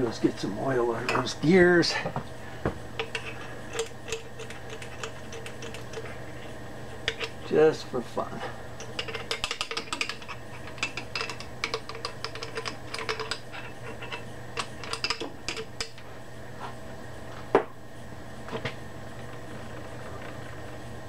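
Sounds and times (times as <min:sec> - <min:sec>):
lathe gears clicking: 0:03.0 - 0:06.2.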